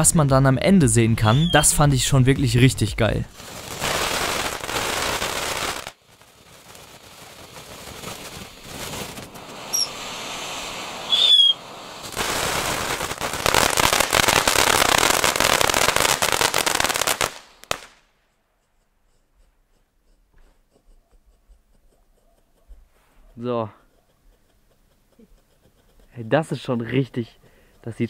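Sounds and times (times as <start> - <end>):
high falling whistle: 1.2 - 1.8, 9.7 - 10.0, 11.1 - 11.6
fountain firework crackling hiss: 3.3 - 18.0.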